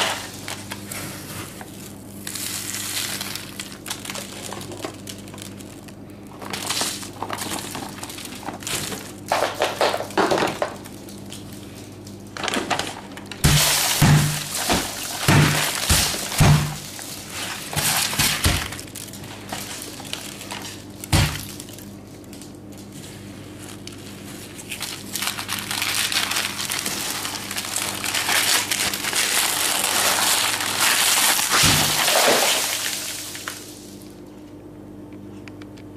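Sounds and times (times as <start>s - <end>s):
rustling and scraping: 6.3s - 20.8s, 22.7s - 25.5s.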